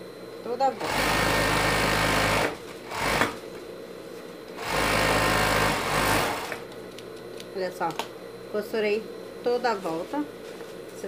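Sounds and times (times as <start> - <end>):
overlock sewing machine stitching: 0.8 - 3.4, 4.6 - 6.6.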